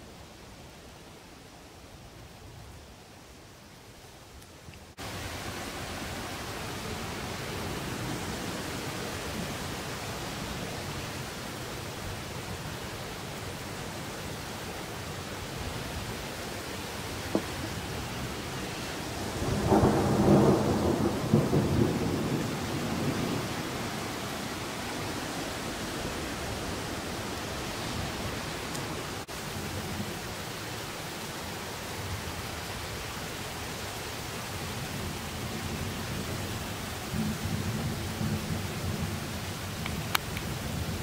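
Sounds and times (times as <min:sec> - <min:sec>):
rain hissing: 0:03.4 - 0:41.0
thunder rumbling: 0:17.3 - 0:27.2.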